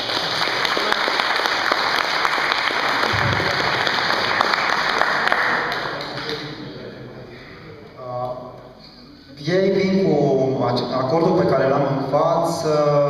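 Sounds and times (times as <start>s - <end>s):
audience applauding: 0.0s - 6.7s
low thump: 3.1s - 4.0s.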